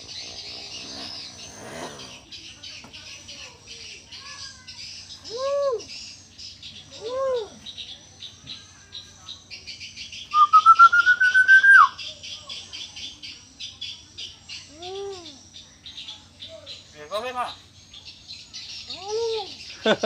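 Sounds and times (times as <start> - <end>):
birds chirping: 0.0 - 20.0
myna whistling: 10.3 - 12.0.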